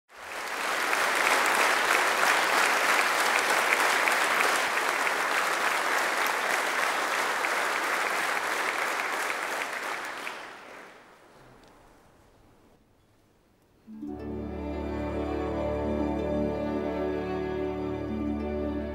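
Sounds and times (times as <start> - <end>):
audience applauding: 0.1 - 11.7.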